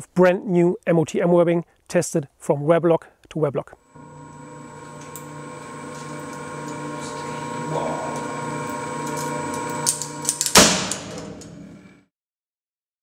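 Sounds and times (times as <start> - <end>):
testing machine humming: 3.8 - 12.0
sharp cracks: 9.3 - 11.6.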